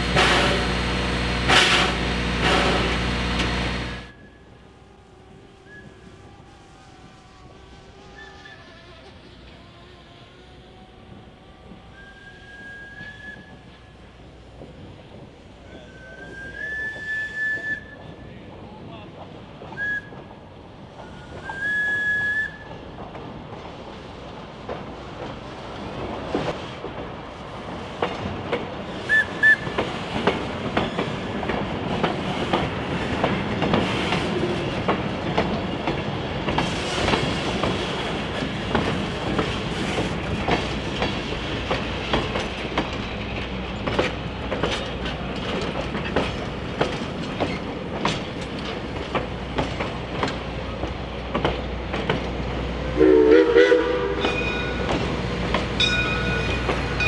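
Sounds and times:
loud multi-tone horn: 0.0 - 4.1, 53.0 - 54.4
train wheels clicking over rail joints: 11.0 - 53.0, 53.8 - 57.0.

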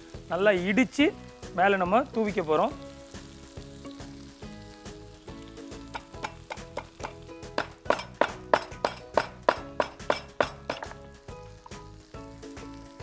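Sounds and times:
pestle pounding in stone mortar: 5.9 - 11.0.

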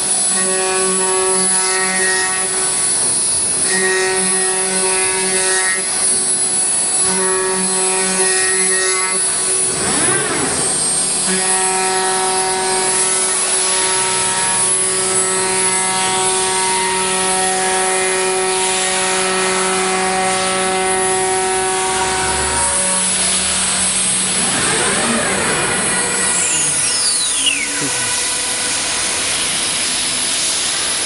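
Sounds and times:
hiss of wood cutting: 0.0 - 31.0
router spindle whine: 0.0 - 31.0.

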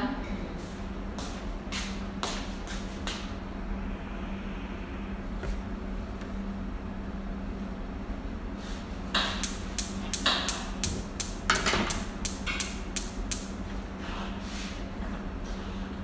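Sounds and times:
steady low hum: 0.0 - 16.0
stove igniter clicking: 9.2 - 13.6.

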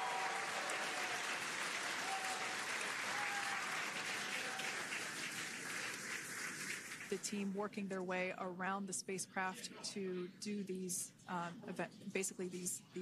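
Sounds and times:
crowd applauding: 0.0 - 7.2
crowd cheering: 0.0 - 7.2.

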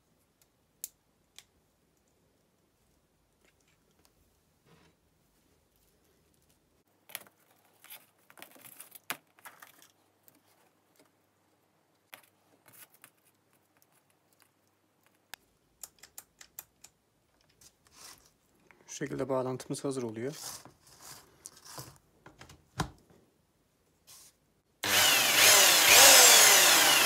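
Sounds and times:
small clicks and taps: 13.0 - 17.7.

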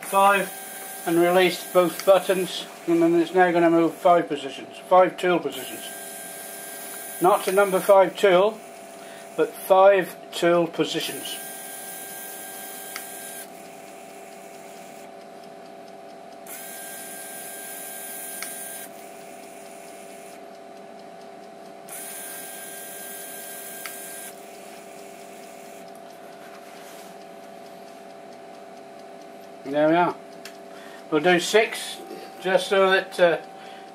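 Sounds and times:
lathe turret motor whirring: 0.0 - 4.6, 5.4 - 9.8, 11.0 - 15.1, 16.5 - 20.4, 21.9 - 26.0
faint steady hum: 0.0 - 33.9.

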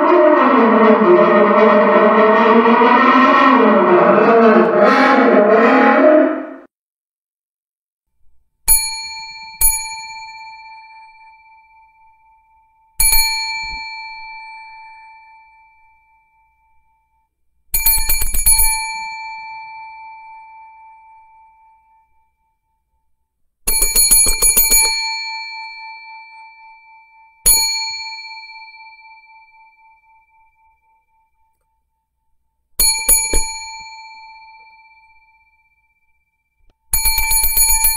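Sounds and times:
small metal bell dinging: 32.8 - 35.8.

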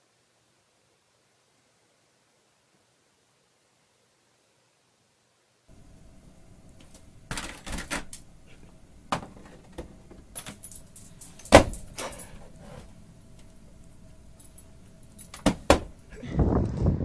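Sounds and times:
plastic pet door flap rattling: 7.3 - 8.2.

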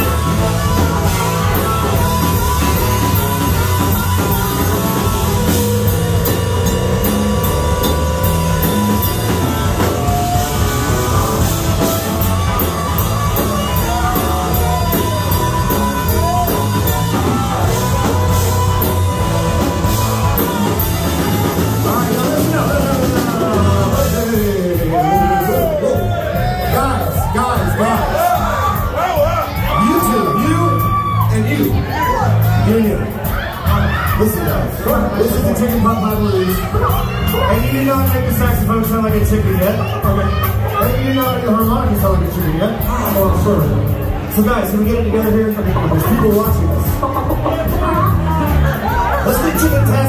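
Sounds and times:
harmonica: 0.0 - 24.1
saxophone: 0.0 - 24.1
electric guitar: 0.0 - 27.3
drum kit: 0.0 - 50.0
electric bass: 0.0 - 50.0.

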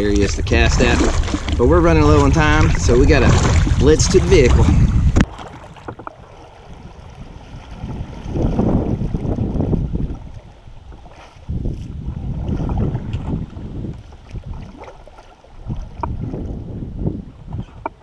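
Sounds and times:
kayak paddling water: 0.0 - 18.0
wind rumbling on microphone: 0.0 - 18.0.

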